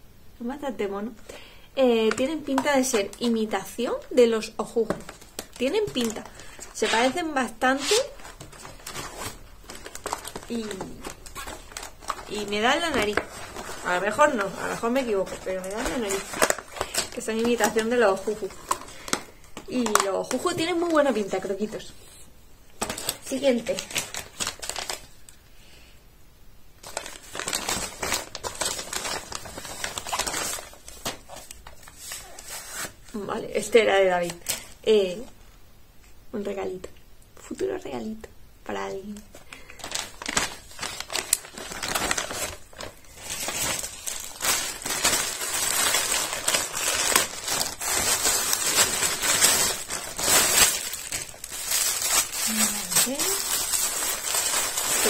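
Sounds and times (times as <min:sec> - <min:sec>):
packaging crinkling: 0:02.0 - 0:21.5, 0:22.8 - 0:25.4, 0:26.8 - 0:33.0, 0:39.3 - 0:55.0.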